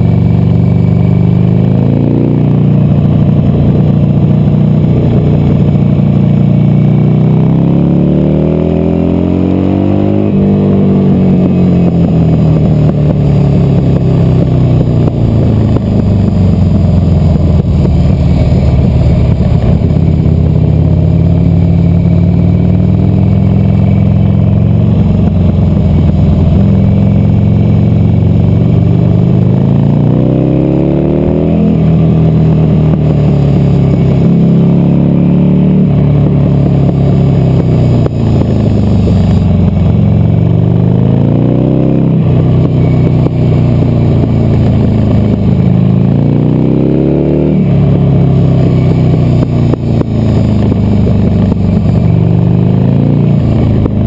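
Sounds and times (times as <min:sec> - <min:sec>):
motorcycle engine revving under load: 0:00.0 - 0:54.0.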